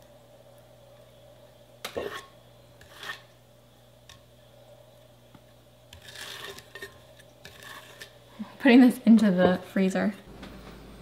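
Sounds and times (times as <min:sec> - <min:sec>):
faint steady hum: 0:00.0 - 0:11.0
scraper scraping cake icing: 0:02.8 - 0:03.3, 0:05.9 - 0:08.1.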